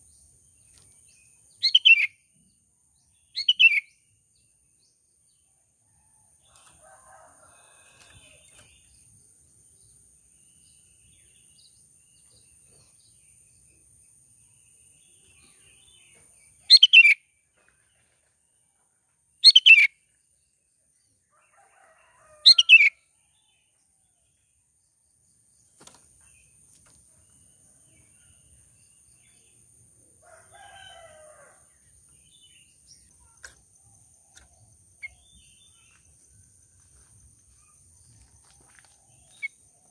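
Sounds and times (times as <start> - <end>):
faint bird chirps: 1.6 - 2.3, 3.2 - 4.0.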